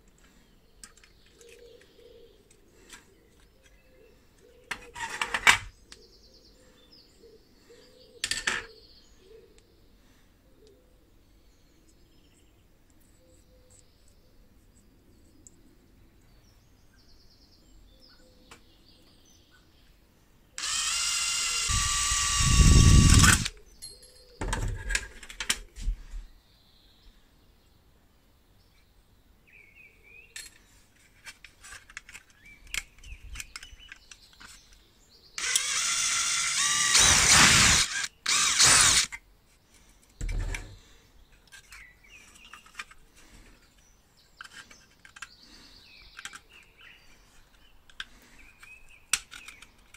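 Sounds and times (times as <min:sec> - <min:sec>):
handheld power tool running: 0:20.6 - 0:23.5, 0:35.4 - 0:39.2.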